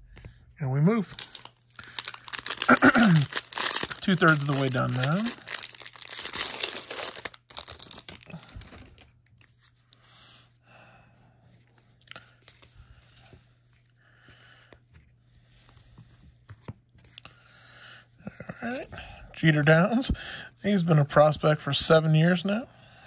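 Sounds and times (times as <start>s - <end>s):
foil wrapper crinkling and tearing: 1.1s - 9.1s
cards rustling and clicking: 1.1s - 9.8s.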